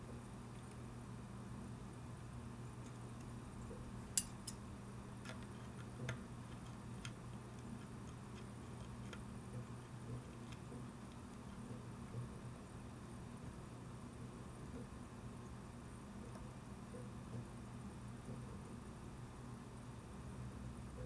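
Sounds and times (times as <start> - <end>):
low steady hum: 0.0 - 21.0
tweezers clicking on metal: 4.2 - 4.6.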